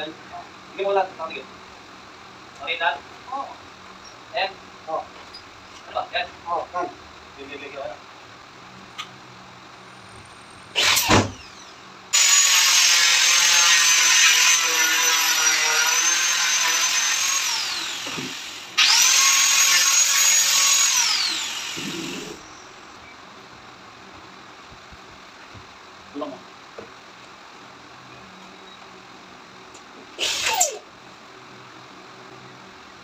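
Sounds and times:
power tool cutting panel: 12.2 - 22.4.

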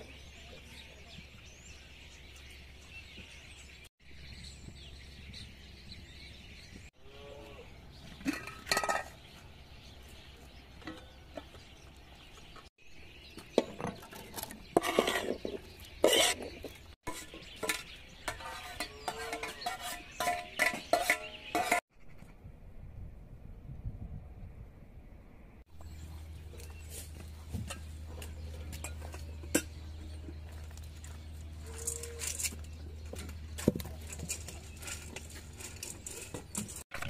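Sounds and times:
metal lid clanking on pot: 8.2 - 9.2.

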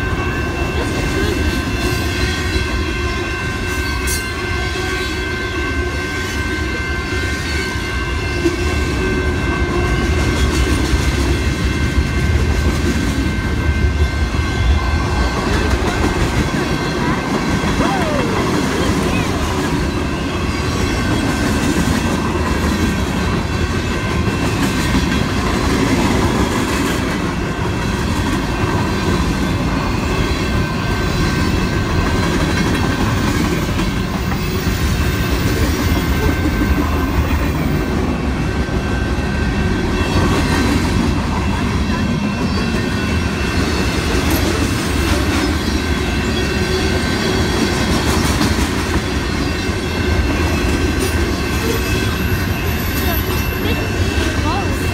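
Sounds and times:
train wheels rumbling on rails: 0.0 - 54.9
high-pitched squeal: 13.5 - 21.3.

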